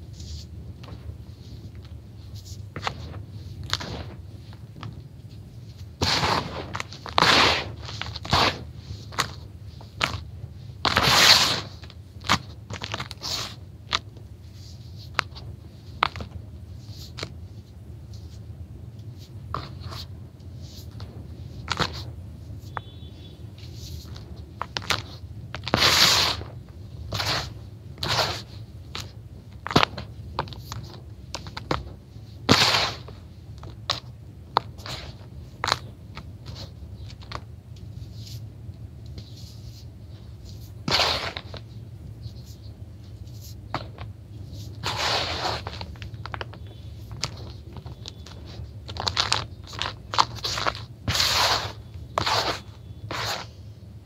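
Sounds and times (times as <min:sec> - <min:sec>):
hands sifting gritty crumbs: 0:05.6 - 0:13.6, 0:23.6 - 0:33.9, 0:39.2 - 0:41.7, 0:42.4 - 0:53.6.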